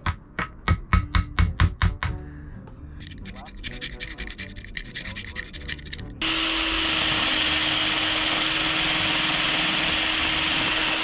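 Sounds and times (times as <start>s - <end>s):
metal scraper scraping gasket: 3.0s - 6.2s
drill with wire brush whirring: 6.2s - 11.0s.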